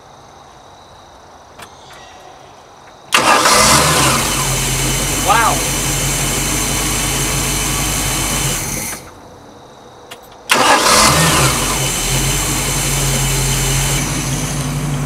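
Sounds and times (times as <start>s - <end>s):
engine starting and revving: 3.1s - 9.2s, 10.5s - 15.0s
boat engine running: 3.2s - 9.1s.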